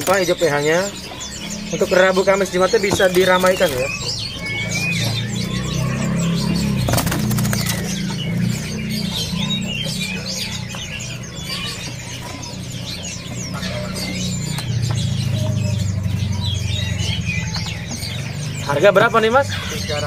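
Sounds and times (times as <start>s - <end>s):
songbirds chirping and trilling: 0.0s - 20.0s.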